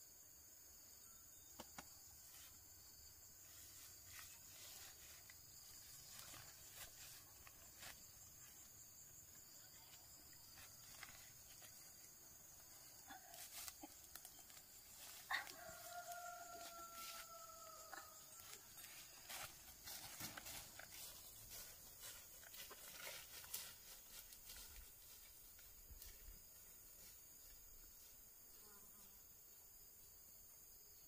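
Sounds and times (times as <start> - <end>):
insects droning: 0.0 - 31.0.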